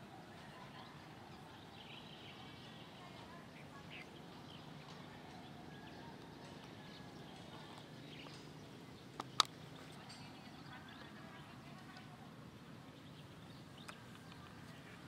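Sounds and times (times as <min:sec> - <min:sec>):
outdoor background noise: 0:00.0 - 0:15.0
sharp clicks: 0:09.1 - 0:09.6.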